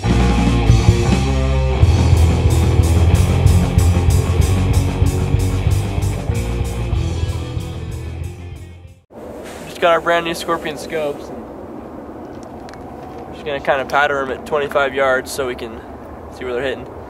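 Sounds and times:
steady drum beat: 0.0s - 8.6s
rock music with electric guitar: 0.0s - 9.0s.

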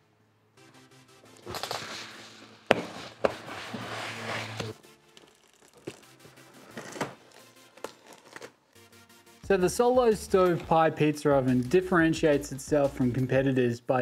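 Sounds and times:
background music: 0.1s - 14.0s
cardboard snaps: 1.4s - 3.4s
cardboard flaps scraping and rustling: 1.4s - 8.5s.

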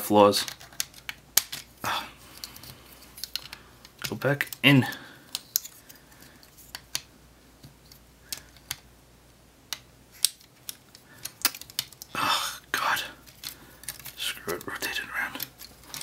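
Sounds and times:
plastic toy parts clicking: 0.4s - 1.7s, 2.3s - 7.1s, 7.9s - 8.9s, 9.7s - 12.2s, 13.2s - 16.0s.

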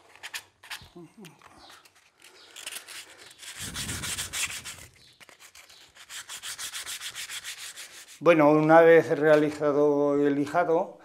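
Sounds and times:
sandpaper rubbing on wood: 2.7s - 8.4s.

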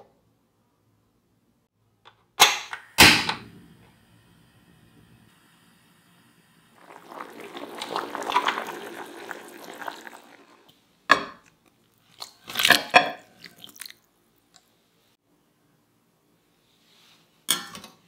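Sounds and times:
water bubbling at a rolling boil: 3.5s - 10.7s
splashes and knocks in bowl: 12.2s - 14.0s.

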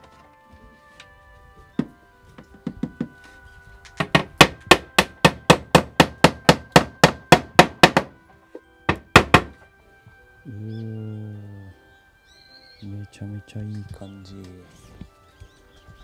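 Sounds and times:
background music: 0.0s - 16.0s
hammer striking wood: 1.8s - 3.2s, 3.9s - 8.2s, 8.9s - 9.6s.

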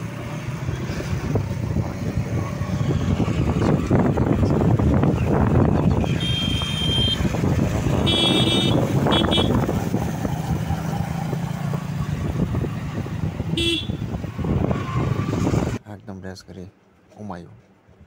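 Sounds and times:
motorcycle engine: 0.0s - 15.8s
wind and road noise: 0.0s - 18.0s
vehicle horns beeping: 6.0s - 9.7s, 13.5s - 14.0s.

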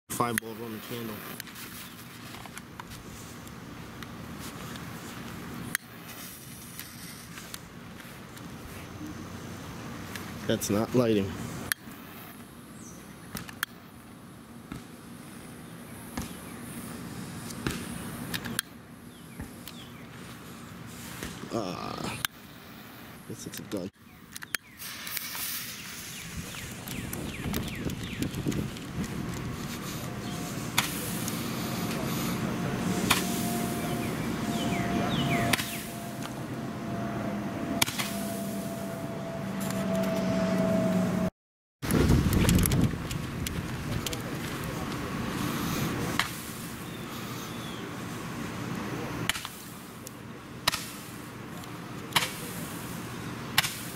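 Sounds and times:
steady low hum: 0.1s - 41.3s.

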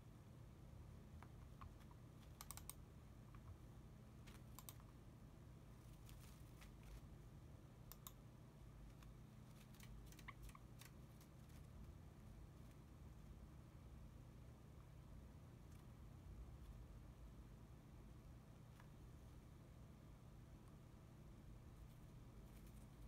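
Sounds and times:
low room hum: 0.0s - 23.0s
light clicks and taps: 1.1s - 4.9s.

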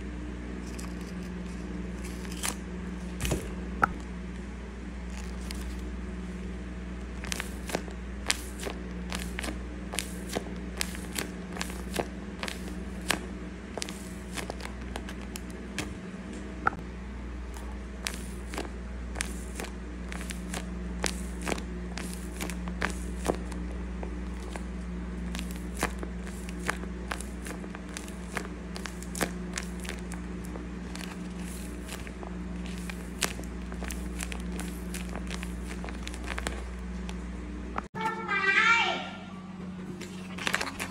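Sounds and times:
steady low hum: 0.0s - 40.9s
tape and paper crinkling: 0.6s - 2.6s, 5.1s - 5.9s, 7.1s - 16.0s, 17.5s - 37.2s, 40.0s - 40.9s.

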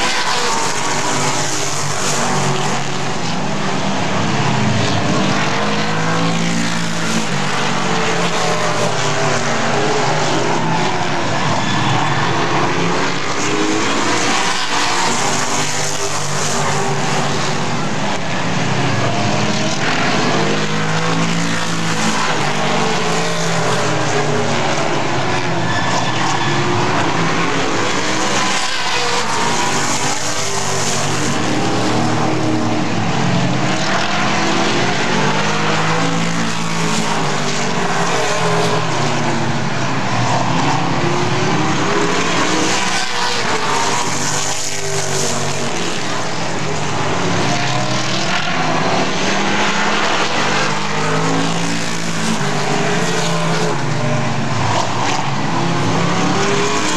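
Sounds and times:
race car engines running hard: 0.0s - 56.9s.

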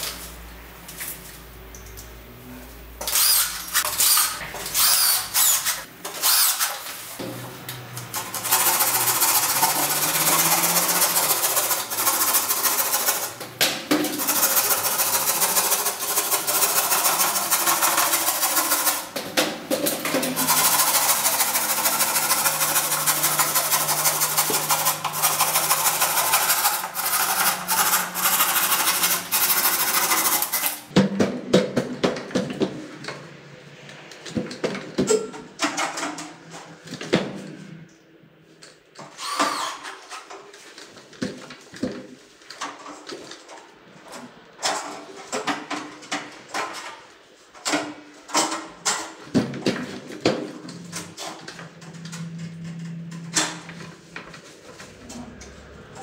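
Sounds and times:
drill driving screws: 3.0s - 6.8s, 39.2s - 39.9s.

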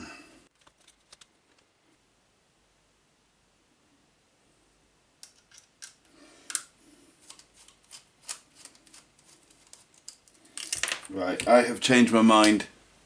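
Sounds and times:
screwdriver clicks and scrapes: 5.2s - 10.8s.

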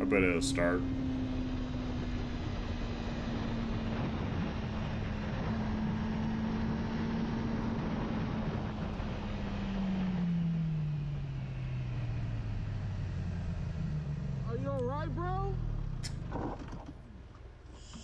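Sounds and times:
wind rush: 1.7s - 10.1s.

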